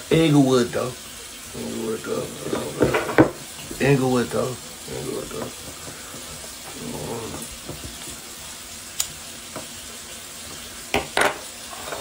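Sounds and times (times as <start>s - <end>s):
recording hiss: 0.0s - 12.0s
low mumble: 6.7s - 7.5s.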